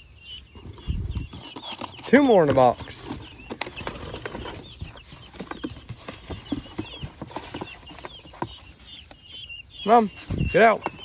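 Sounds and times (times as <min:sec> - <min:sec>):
chicks peeping: 0:00.0 - 0:11.0.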